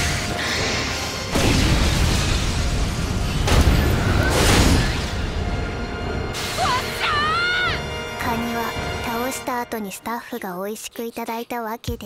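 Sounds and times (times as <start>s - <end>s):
dramatic background music: 0.0s - 11.0s
booming explosions: 1.2s - 6.6s.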